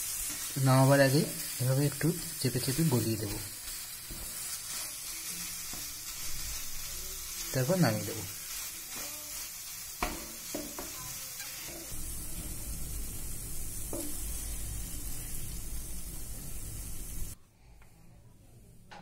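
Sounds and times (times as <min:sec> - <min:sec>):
food sizzling in a frying pan: 0:00.0 - 0:17.4
wooden spatula scraping a pan: 0:08.3 - 0:11.9.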